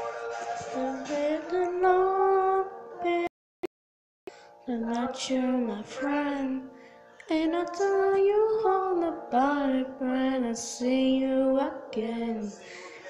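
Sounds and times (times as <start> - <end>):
woman singing: 0.6 - 3.3, 4.7 - 12.9.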